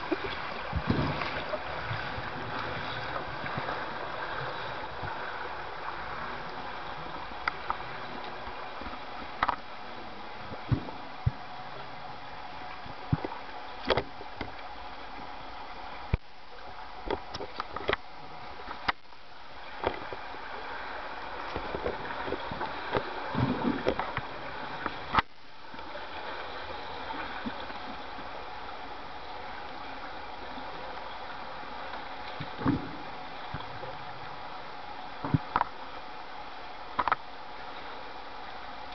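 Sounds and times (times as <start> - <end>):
gurgling bubbles: 0.0 - 7.2.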